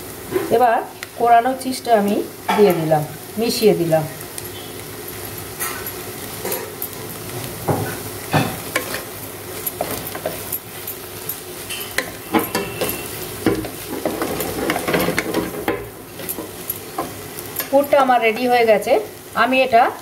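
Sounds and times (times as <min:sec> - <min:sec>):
oil sizzling: 0:00.0 - 0:20.0
spatula scraping a pan: 0:11.6 - 0:17.8
spatula knocking on pan: 0:12.0 - 0:17.2.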